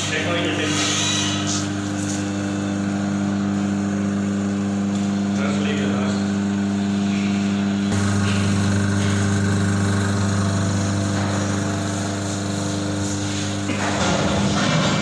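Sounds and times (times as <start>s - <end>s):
electric motor humming: 7.7s - 14.0s.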